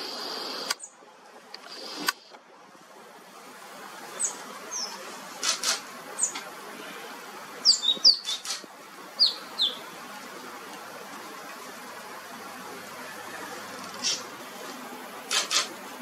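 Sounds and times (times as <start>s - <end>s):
songbird chirping: 4.0s - 5.2s, 6.1s - 10.8s
sharp clicks: 5.4s - 6.5s, 8.2s - 8.7s, 15.3s - 15.8s.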